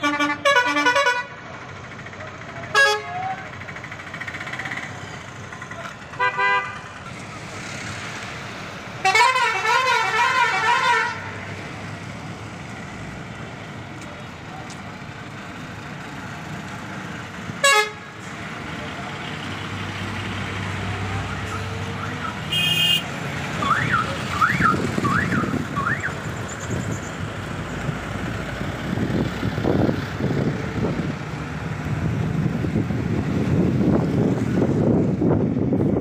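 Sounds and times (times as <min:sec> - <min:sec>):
loud horn blast: 0:00.0 - 0:01.4, 0:02.7 - 0:03.2, 0:06.2 - 0:06.8, 0:09.0 - 0:11.3, 0:17.6 - 0:18.2, 0:22.5 - 0:23.1
bus engine and road noise: 0:00.0 - 0:36.0
high horn beep: 0:22.2 - 0:23.1.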